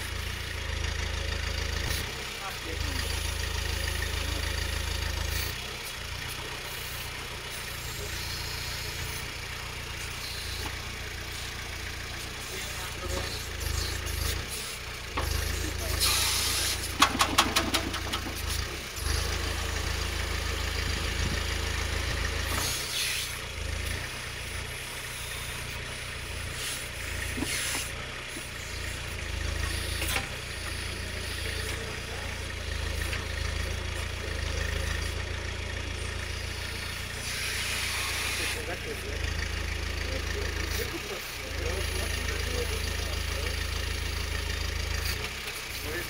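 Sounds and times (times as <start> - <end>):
tractor engine running: 0.0 - 46.0
quick clatter: 16.0 - 18.7.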